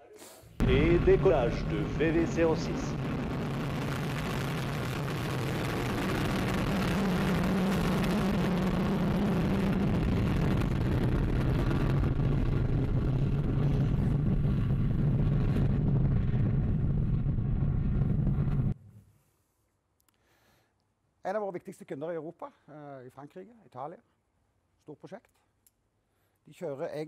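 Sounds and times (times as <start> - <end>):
rocket motor roaring: 0.6 - 18.8.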